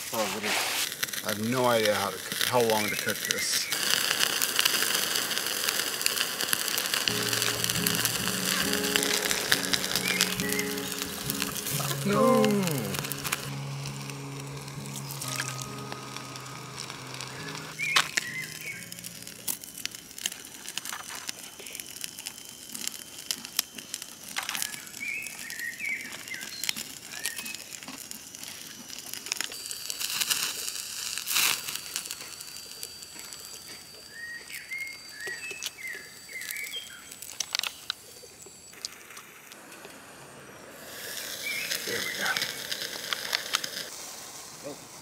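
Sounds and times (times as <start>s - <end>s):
bird chirps: 8.2s - 11.8s, 17.2s - 19.1s
plastic packaging crinkling: 14.6s - 32.2s.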